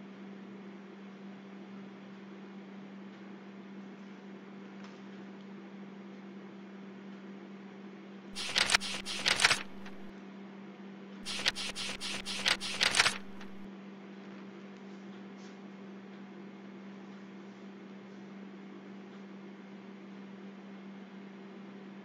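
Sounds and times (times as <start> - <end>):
computer mouse button clicking: 8.4 - 10.1, 11.2 - 13.6
steady electrical hum: 8.4 - 10.1, 11.2 - 13.7.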